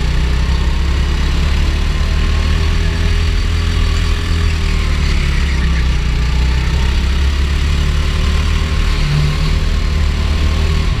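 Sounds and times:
go-kart engine running: 0.0 - 11.0.

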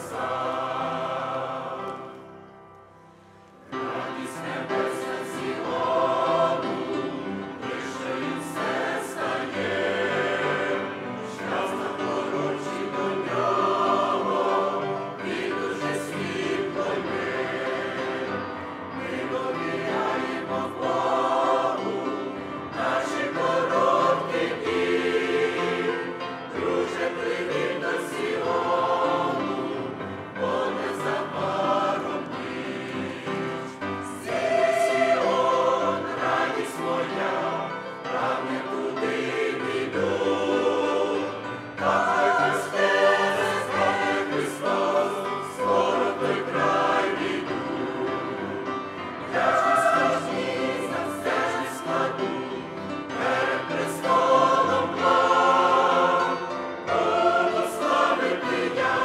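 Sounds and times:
choir singing a hymn: 0.0 - 59.0.

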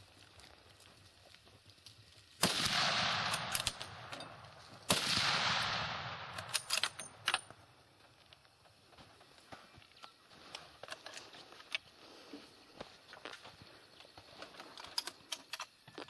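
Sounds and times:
rifle shots with rolling echo: 2.4 - 7.7.

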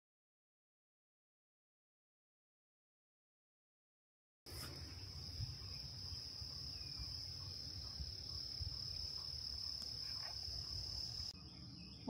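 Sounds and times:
crickets trilling: 4.5 - 12.0.

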